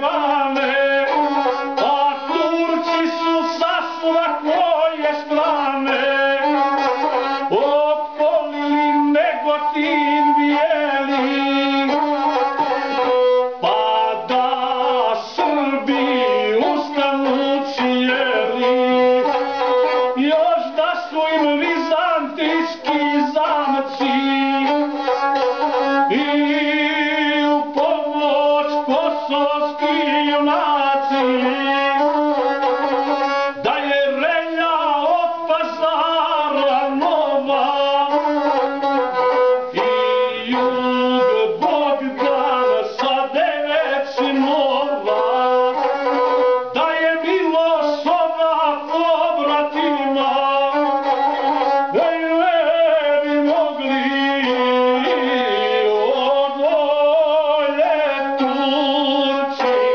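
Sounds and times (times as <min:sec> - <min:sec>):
bowed single-string fiddle: 0:00.0 - 0:59.9
man singing: 0:00.0 - 0:59.9.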